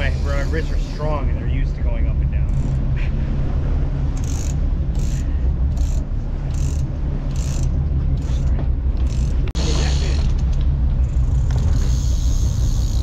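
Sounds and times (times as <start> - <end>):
high-pitched fishing reel rasp: 0.0 - 0.9, 4.2 - 8.5, 11.0 - 13.0
boat engine rumble: 0.0 - 13.0.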